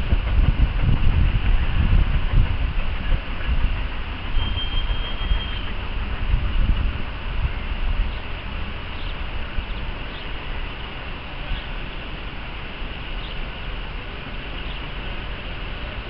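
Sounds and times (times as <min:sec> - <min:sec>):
wind rushing: 0:00.0 - 0:04.4
steam train rumble: 0:00.0 - 0:16.0
faint bird chirps: 0:04.4 - 0:05.7.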